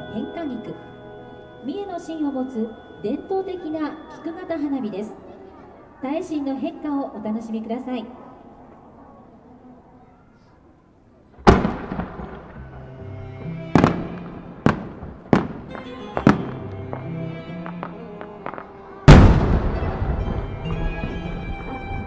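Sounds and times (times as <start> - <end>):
background music sustained notes: 0.0 - 7.2, 11.5 - 22.0
fireworks bangs: 11.4 - 12.9, 13.7 - 22.0
fireworks crackling: 11.4 - 13.0, 13.6 - 22.0.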